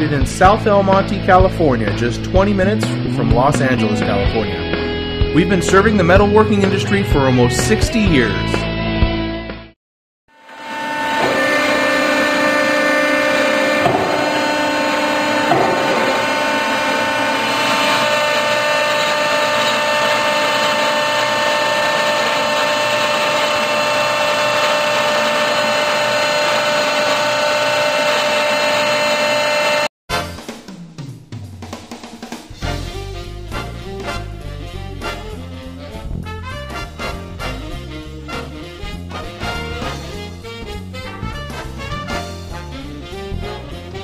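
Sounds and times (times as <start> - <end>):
hydraulic pump motor whine: 10.3 - 29.9.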